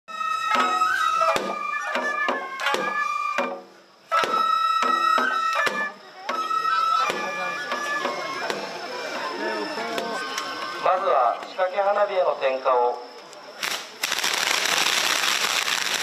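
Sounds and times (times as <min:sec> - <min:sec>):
plucked shamisen: 0:00.1 - 0:10.9
high flute line: 0:00.1 - 0:11.4
drum strikes: 0:00.4 - 0:09.0.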